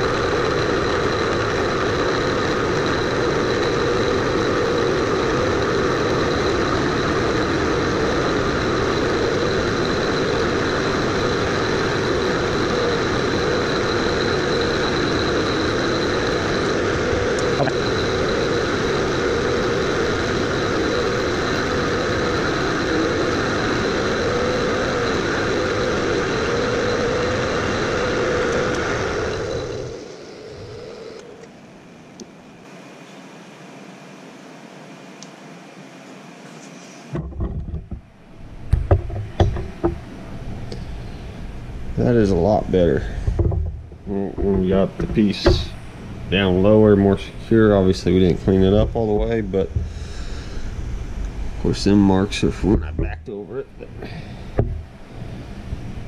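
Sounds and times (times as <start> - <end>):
milling machine drone: 0.0 - 56.0
thin high whine: 0.0 - 56.0.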